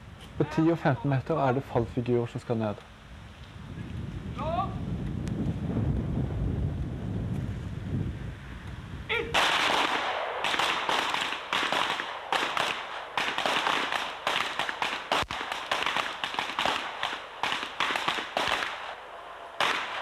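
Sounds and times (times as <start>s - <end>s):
pistol shots: 9.4s - 20.0s.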